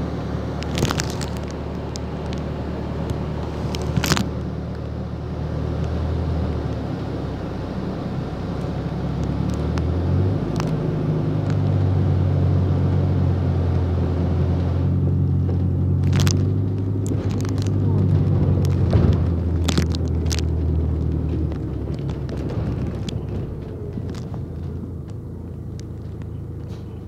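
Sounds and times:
bus engine drone: 0.0 - 27.0
clicks and rattles: 0.6 - 4.9, 15.5 - 27.0.

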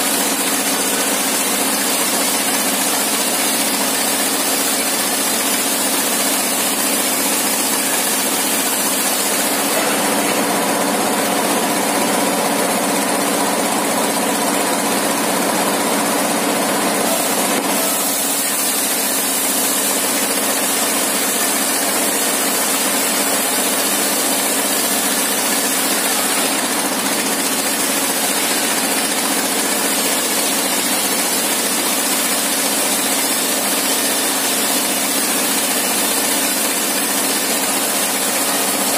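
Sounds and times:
saw blade cutting wood: 7.4 - 10.8, 17.0 - 31.4.

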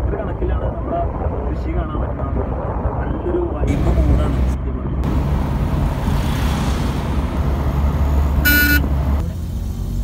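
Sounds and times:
car engine and road rumble: 0.0 - 10.0
car horn beep: 8.4 - 8.9.

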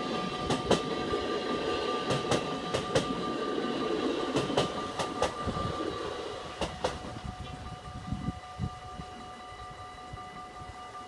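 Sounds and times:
wheels clacking over rail joints: 0.0 - 7.6
level-crossing bells ringing: 0.0 - 11.0
train wheels rushing on rail: 0.0 - 11.0.

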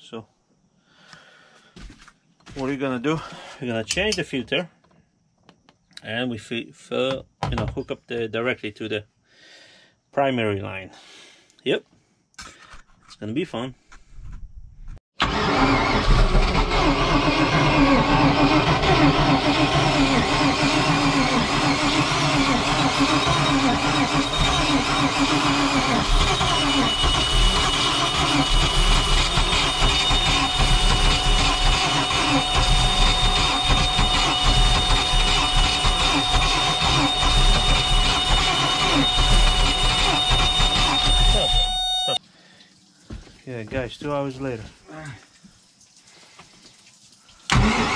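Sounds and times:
boat engine running: 15.2 - 42.2
thin high whine: 22.5 - 42.2.

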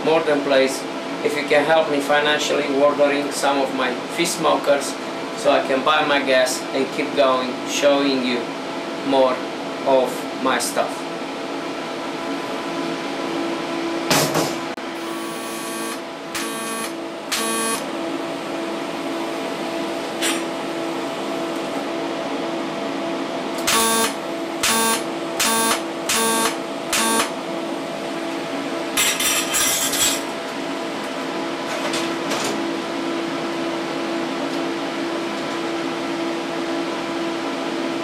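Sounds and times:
steady hum: 14.8 - 22.4, 23.4 - 28.7
welding arc buzzing: 14.9 - 17.9, 23.6 - 27.4.

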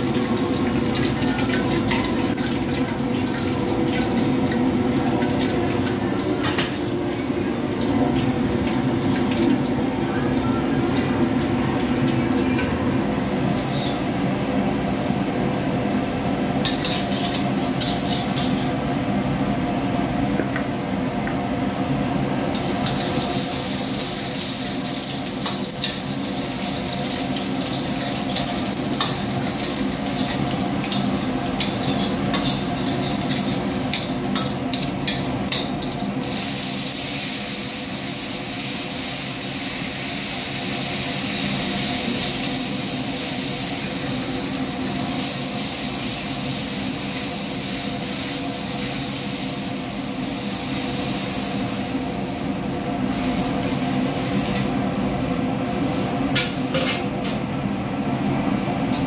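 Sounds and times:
food sizzling in hot oil: 0.0 - 6.4, 16.5 - 19.0, 22.4 - 57.2
gas burner and exhaust hood roar: 0.0 - 59.0
metal ladle scraping a wok: 13.6 - 14.1, 16.7 - 18.8.

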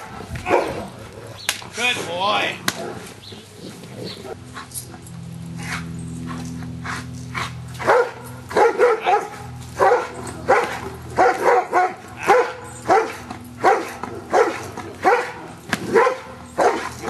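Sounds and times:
dog barking: 0.0 - 0.8, 7.8 - 17.0
steady low hum: 0.0 - 17.0.

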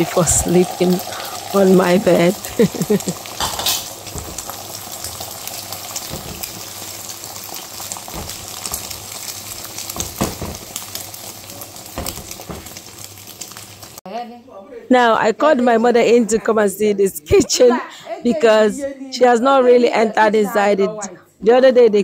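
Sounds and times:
egg frying in oil: 0.0 - 14.0.

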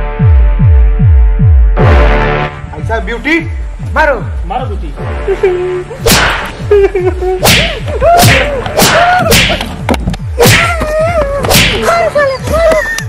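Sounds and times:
whip cracks and swishes: 6.0 - 6.6, 7.4 - 9.7, 10.4 - 10.7, 11.4 - 11.9.

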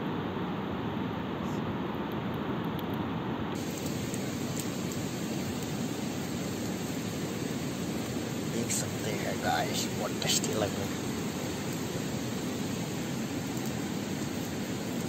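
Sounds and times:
wood fire crackling: 2.1 - 15.0
river rushing: 3.6 - 15.0.

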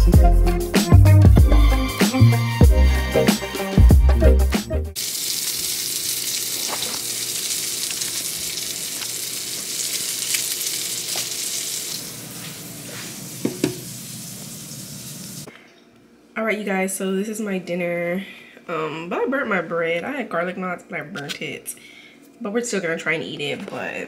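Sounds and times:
meat sizzling in a pan: 5.0 - 15.5.

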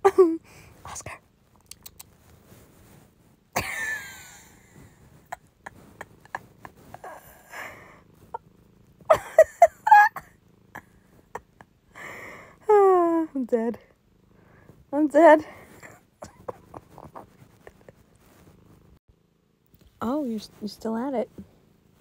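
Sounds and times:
person laughing: 0.0 - 0.4, 3.6 - 7.9, 9.1 - 11.7, 15.8 - 18.0
soft breaths and snorts: 4.5 - 8.4
person gasping: 12.0 - 12.6.

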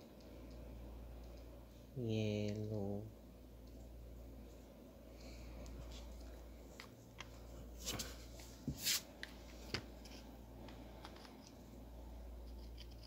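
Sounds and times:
low steady hum: 0.0 - 13.0
handling rubs and clicks: 5.6 - 11.6, 12.3 - 13.0.

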